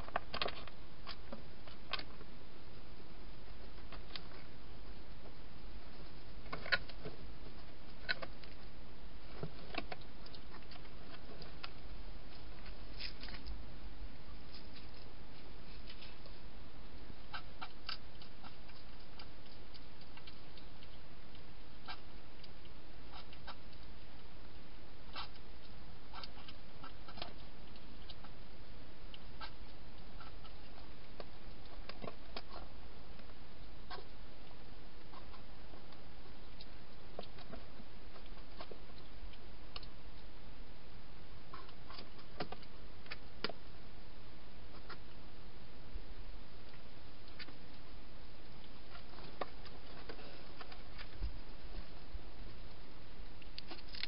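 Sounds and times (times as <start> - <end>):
hedgehog crunching dry food: 0.0 - 2.3, 6.1 - 7.0, 14.3 - 40.3, 48.4 - 54.0
background hiss: 0.0 - 54.0.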